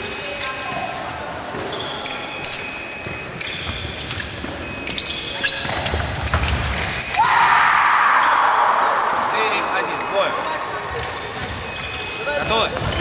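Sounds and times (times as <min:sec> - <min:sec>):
loud sustained shout: 0:07.2 - 0:09.8.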